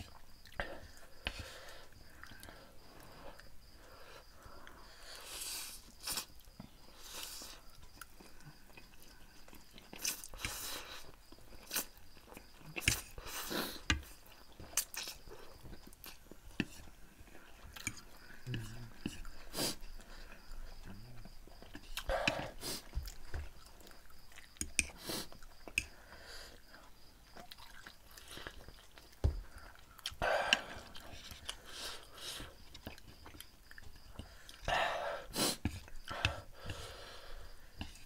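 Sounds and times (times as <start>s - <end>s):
chewing and slurping noodles: 7.0s - 26.0s, 26.6s - 34.7s.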